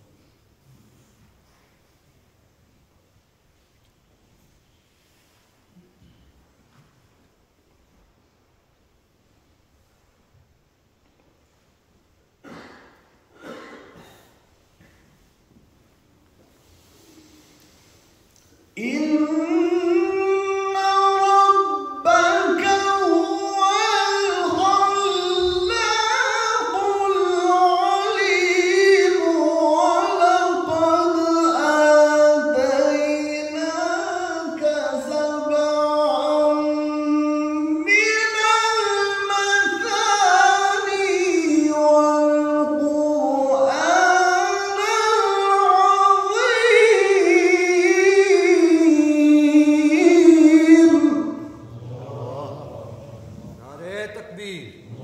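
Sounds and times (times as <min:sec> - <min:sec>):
man chanting recitation: 0:18.7 - 0:55.0.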